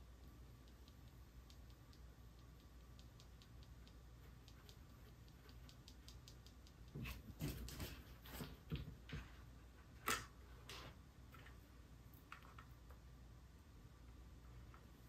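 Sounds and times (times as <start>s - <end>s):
faint regular ticks: 0.1s - 7.0s.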